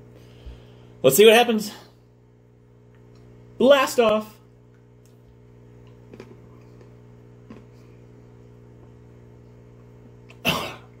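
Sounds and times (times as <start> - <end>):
low electrical hum: 0.0 - 11.0
chewing chocolate: 5.8 - 8.0.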